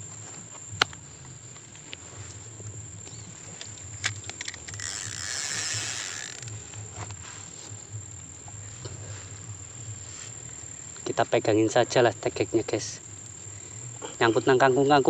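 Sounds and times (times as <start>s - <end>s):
insects trilling: 0.0s - 15.0s
rushing hiss: 4.0s - 15.0s.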